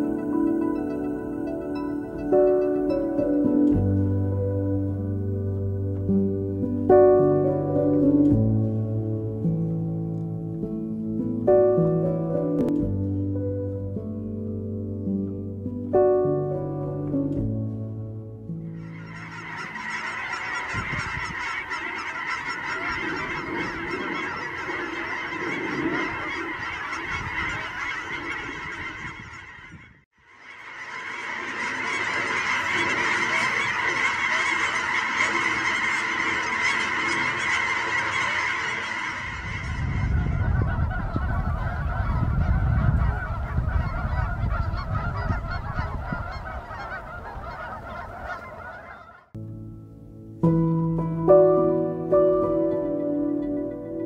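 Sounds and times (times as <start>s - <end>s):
flock of geese honking: 0.0s - 9.2s, 18.6s - 49.4s, 51.2s - 54.0s.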